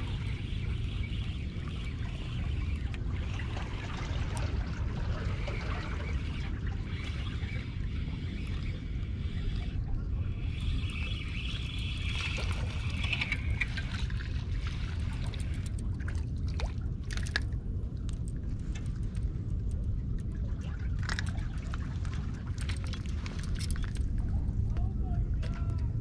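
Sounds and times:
wind rumble on microphone: 0:00.0 - 0:26.0
fishing reel cranking: 0:10.4 - 0:15.8.

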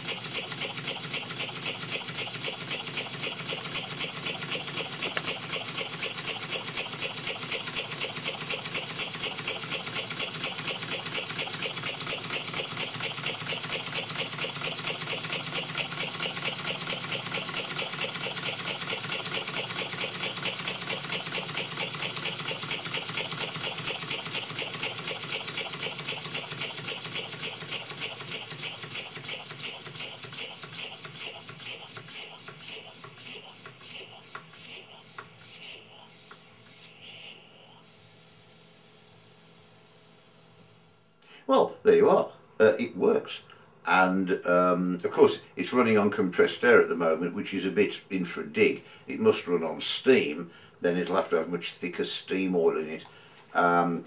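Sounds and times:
model steam engine exhaust puffs: 0:00.0 - 0:38.0.

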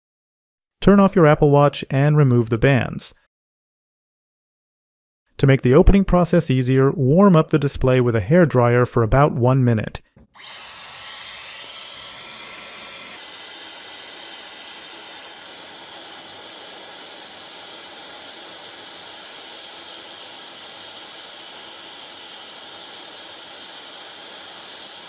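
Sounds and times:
hair dryer blowing: 0:10.4 - 0:25.0.

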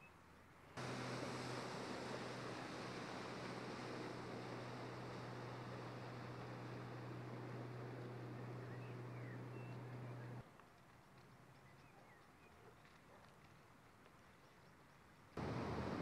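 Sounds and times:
low hum: 0:00.8 - 0:10.4.

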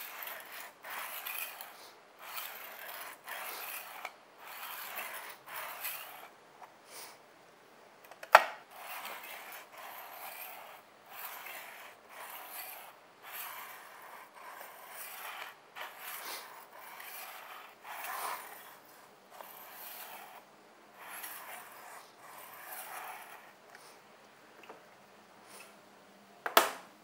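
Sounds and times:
sharpening stone stroking knife: 0:00.0 - 0:06.3, 0:08.8 - 0:20.4, 0:21.0 - 0:23.6.

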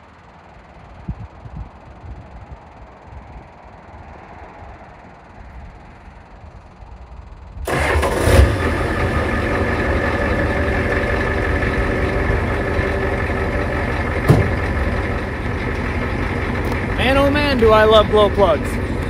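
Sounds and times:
diesel engine starting and idling: 0:07.6 - 0:19.0
sharp knock: 0:14.3 - 0:14.7.

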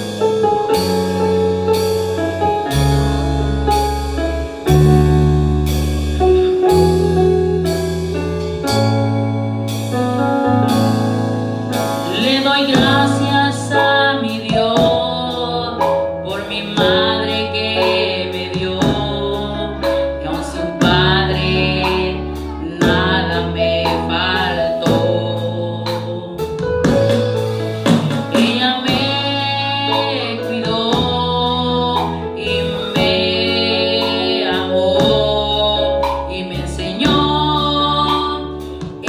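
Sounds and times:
keyboard backing with beat: 0:00.0 - 0:39.0
woman singing: 0:12.0 - 0:27.0, 0:28.0 - 0:39.0.

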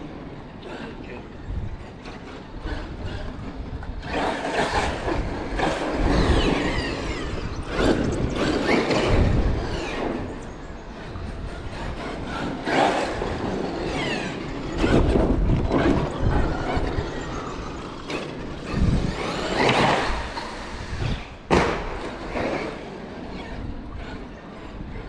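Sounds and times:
toy truck running: 0:00.0 - 0:25.0
heavy thumps and bang: 0:21.5 - 0:22.2.

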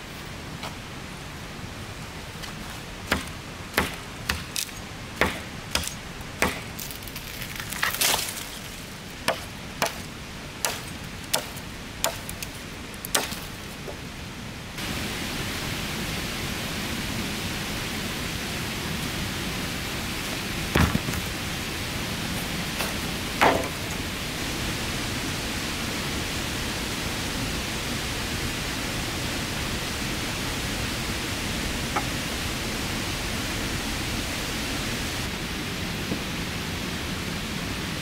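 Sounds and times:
loud steady hiss: 0:00.0 - 0:38.0
sharp chopping strikes: 0:03.1 - 0:07.0, 0:09.3 - 0:12.4, 0:13.1 - 0:13.6.

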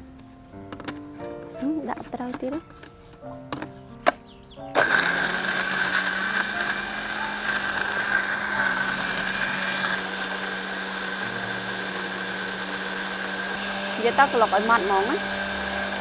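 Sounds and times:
blender running: 0:04.8 - 0:16.0.

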